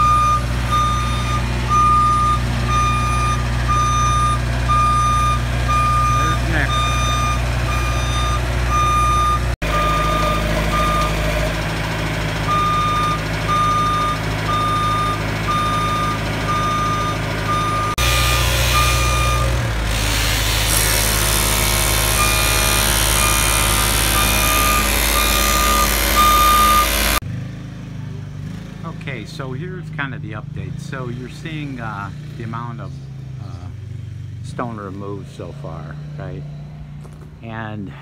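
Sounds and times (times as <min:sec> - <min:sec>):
motion alarm beeping: 0:00.0 - 0:11.3, 0:12.5 - 0:19.6, 0:22.2 - 0:27.2
engine running steadily: 0:00.0 - 0:38.0.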